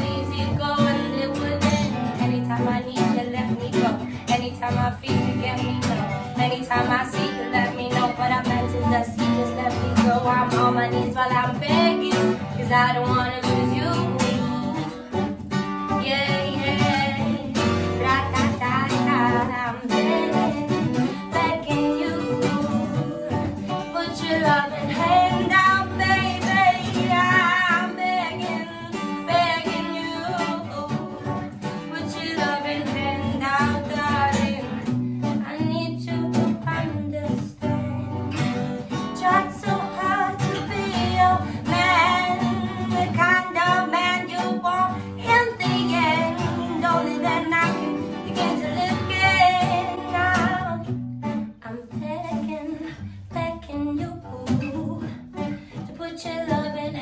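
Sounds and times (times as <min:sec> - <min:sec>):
acoustic guitar: 0:00.0 - 0:57.0
woman singing: 0:00.0 - 0:57.0.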